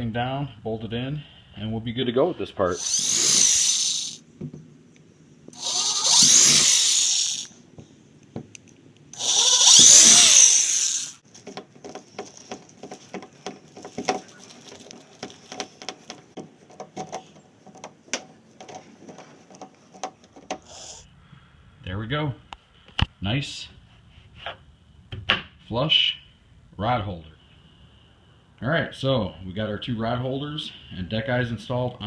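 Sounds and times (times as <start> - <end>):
electric drill boring plastic: 2.8 - 4.2, 5.6 - 7.5, 9.2 - 11.2.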